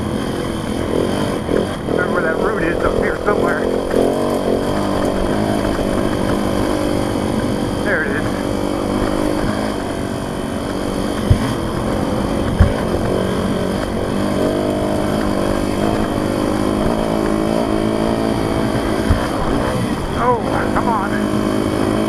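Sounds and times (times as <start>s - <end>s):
dirt bike engine revving: 0.0s - 22.0s
sharp knocks: 10.7s - 16.1s, 18.8s - 19.7s.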